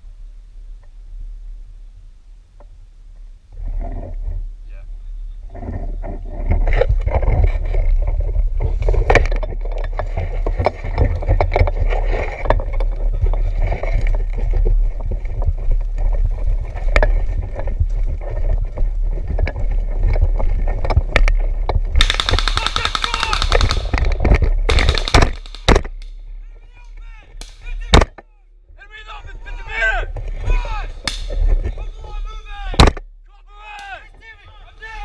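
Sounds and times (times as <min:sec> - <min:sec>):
wind rumble on microphone: 0:00.0 - 0:22.1
knocks and clicks: 0:22.0 - 0:26.1.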